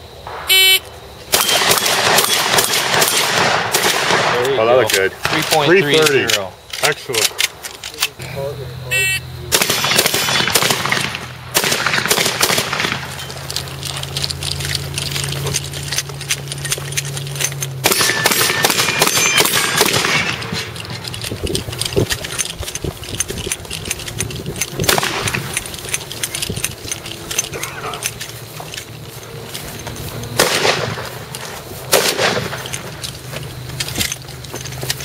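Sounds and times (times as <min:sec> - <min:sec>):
shotgun shots: 0:00.3 - 0:05.8, 0:09.5 - 0:13.4, 0:17.8 - 0:21.1, 0:24.8 - 0:25.7, 0:30.3 - 0:31.3, 0:31.9 - 0:32.7
steady low hum: 0:07.3 - 0:35.0.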